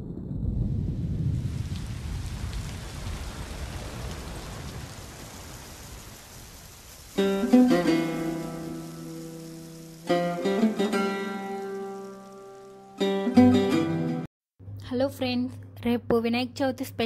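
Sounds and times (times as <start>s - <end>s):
rolling thunder: 0.0s - 10.2s
rain hissing: 0.0s - 14.3s.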